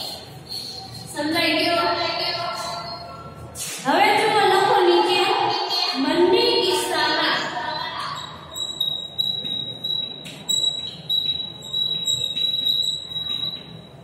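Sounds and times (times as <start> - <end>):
chalk squeaking: 8.2 - 14.0.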